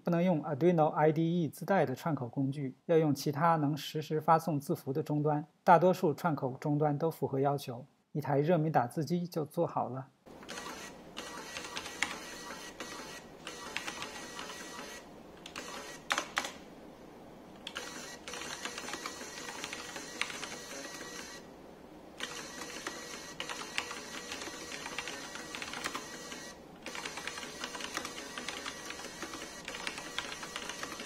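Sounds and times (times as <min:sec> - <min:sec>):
printer motor whirring: 0:10.4 - 0:16.5, 0:17.6 - 0:21.5, 0:22.2 - 0:31.0
keyboard typing: 0:10.4 - 0:16.6, 0:17.6 - 0:21.4, 0:22.2 - 0:31.0.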